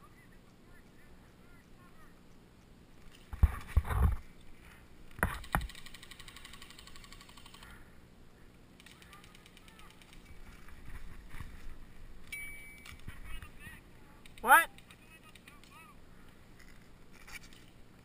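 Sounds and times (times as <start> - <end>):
airsoft gun automatic fire: 5.3 - 7.6.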